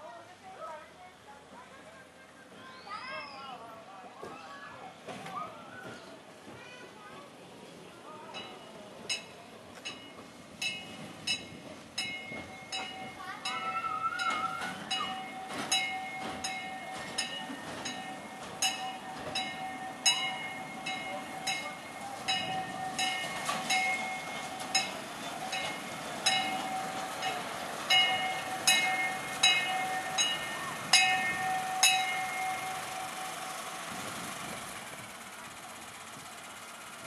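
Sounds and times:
wheels clicking over rail joints: 8.3s - 37.0s
high-pitched wheel ring: 8.4s - 33.7s.

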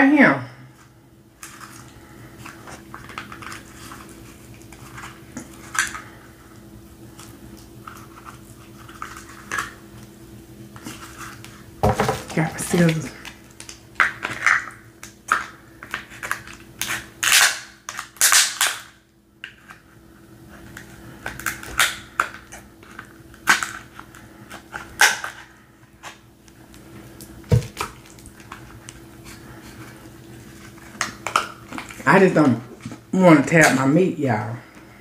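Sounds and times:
scissors cracking crab shell: 12.7s - 19.0s, 21.2s - 24.1s.

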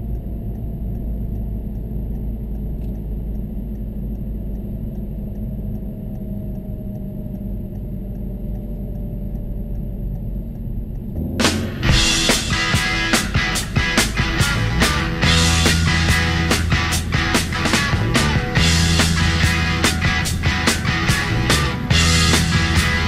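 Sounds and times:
car engine from inside cabin: 0.0s - 23.0s
road rumble: 0.0s - 23.0s.

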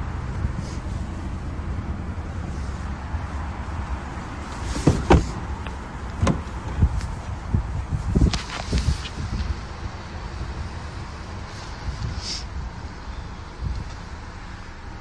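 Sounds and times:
car doors clunking: 4.1s - 7.4s
wind on microphone: 6.2s - 14.2s.

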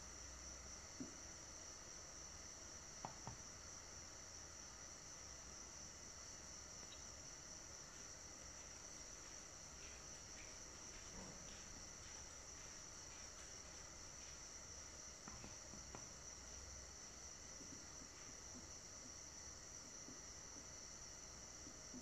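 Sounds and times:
faint ticks: 6.8s - 7.2s.

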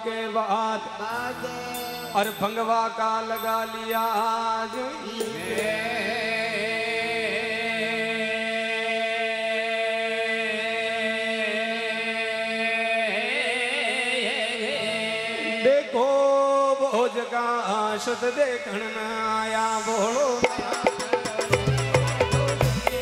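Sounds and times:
man singing drawn-out note: 0.0s - 22.9s
harmonium drone: 1.0s - 8.9s.

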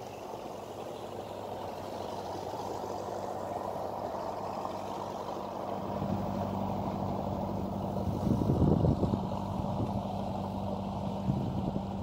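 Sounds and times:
boat engine humming: 0.0s - 12.0s
steady rushing noise: 0.0s - 12.0s.

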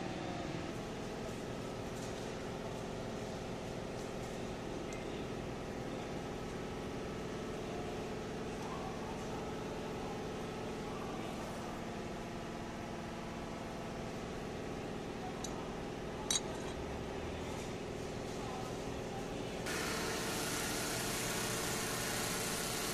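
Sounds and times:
steady machine hum: 18.8s - 22.9s.

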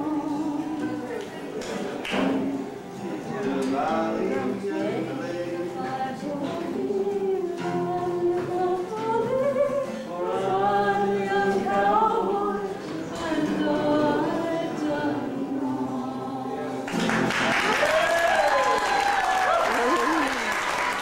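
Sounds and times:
person singing unaccompanied: 0.0s - 1.6s, 3.0s - 16.9s.

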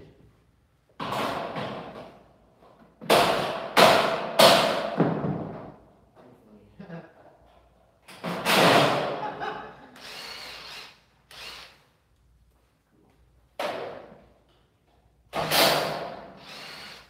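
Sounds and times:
cordless drill running: 10.0s - 11.8s, 16.4s - 17.0s.

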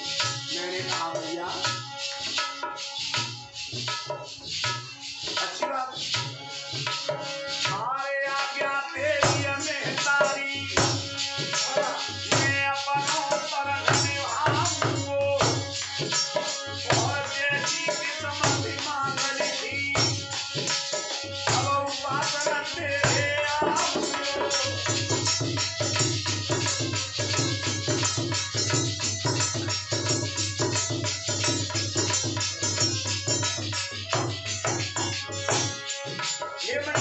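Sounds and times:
man singing: 0.0s - 1.8s, 5.4s - 6.2s, 7.6s - 25.9s, 36.2s - 37.0s
harmonium: 0.0s - 37.0s
jingling metal percussion: 0.0s - 37.0s
hand drum: 9.1s - 37.0s.

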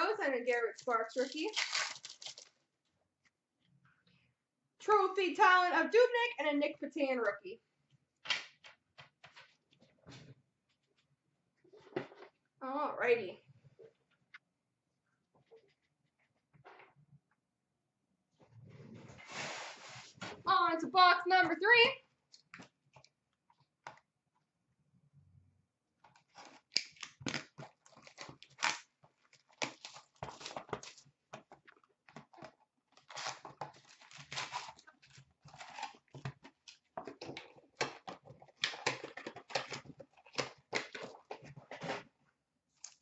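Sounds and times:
foil packs tearing and crinkling: 1.1s - 2.5s, 26.4s - 31.0s, 33.0s - 36.2s.

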